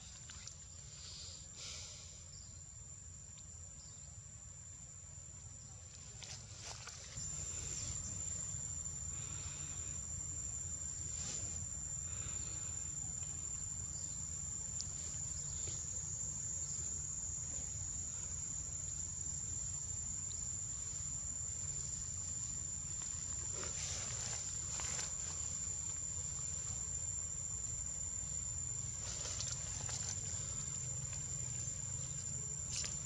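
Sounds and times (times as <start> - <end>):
insects trilling: 0.0 - 33.0
faint rustles: 10.8 - 14.1, 20.8 - 26.9, 28.7 - 33.0.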